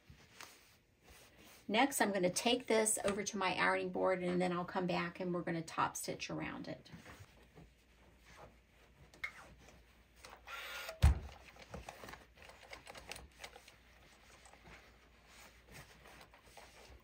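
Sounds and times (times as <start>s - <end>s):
knocks and rustles of handling: 6.9s - 10.3s, 11.0s - 17.0s.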